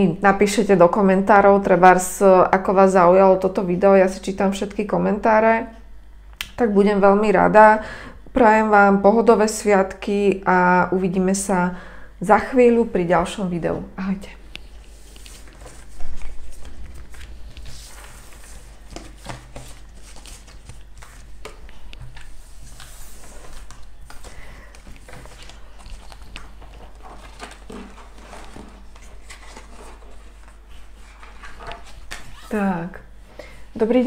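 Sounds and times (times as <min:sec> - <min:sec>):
cards rustling: 0:14.5 - 0:32.6.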